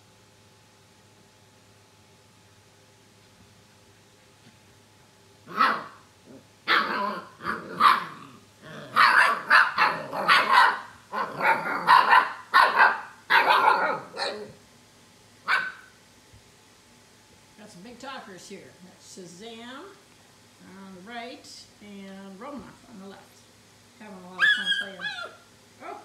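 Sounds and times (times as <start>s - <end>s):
puppies barking: 5.5s - 6.0s, 6.7s - 14.6s, 15.4s - 15.9s, 24.4s - 26.0s
puppies growling: 5.5s - 12.2s.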